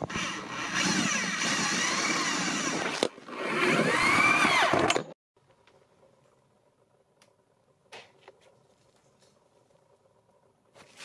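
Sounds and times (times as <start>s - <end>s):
power drill drilling through plastic: 0.0s - 5.1s.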